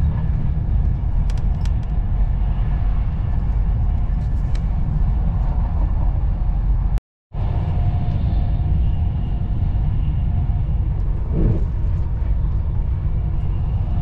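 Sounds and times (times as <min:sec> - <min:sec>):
train rumbling inside coach: 0:00.0 - 0:14.0.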